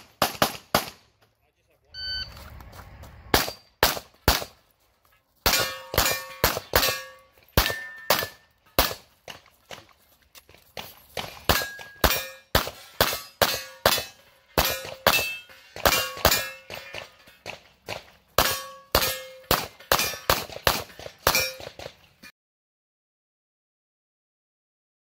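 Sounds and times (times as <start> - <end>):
pistol shots: 0.0 - 1.0, 3.3 - 4.6, 5.4 - 9.1, 11.2 - 21.9
ring of struck steel targets: 5.4 - 9.0, 11.2 - 17.6, 18.4 - 22.3.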